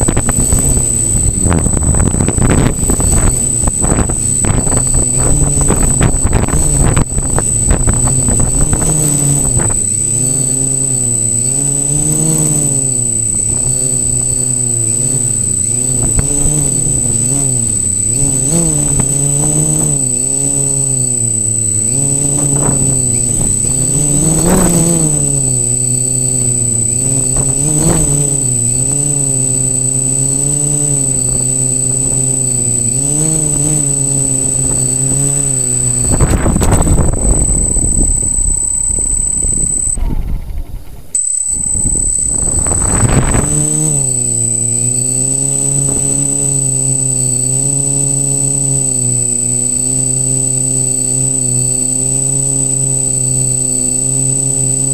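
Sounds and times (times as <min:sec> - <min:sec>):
rushing wind noise: 0:00.0 - 0:10.2, 0:30.5 - 0:45.0
drone propellers humming: 0:00.0 - 0:54.9
thin high-pitched tone: 0:00.0 - 0:54.9.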